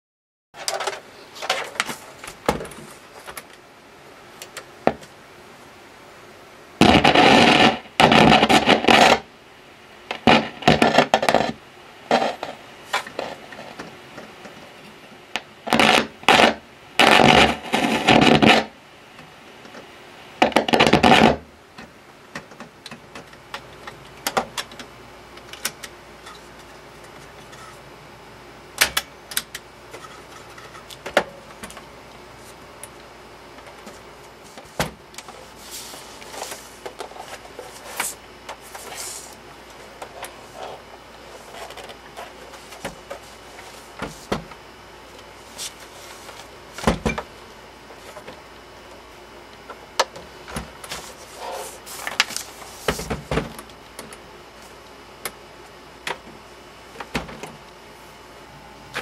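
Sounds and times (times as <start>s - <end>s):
radio crackle and static: 4.2s - 59.0s.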